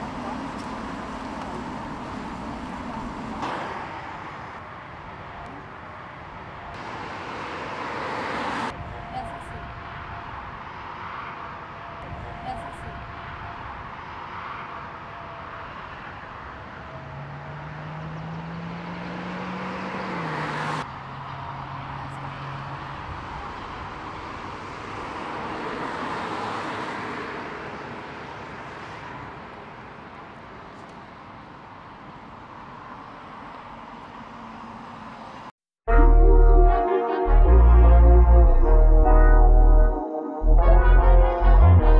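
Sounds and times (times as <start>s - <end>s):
car accelerating past: 16.9s - 20.9s.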